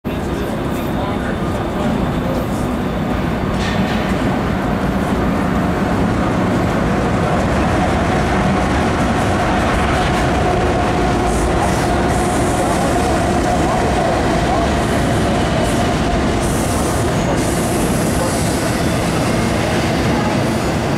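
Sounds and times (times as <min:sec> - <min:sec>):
diesel locomotive engine rumble: 0:00.1 - 0:20.9.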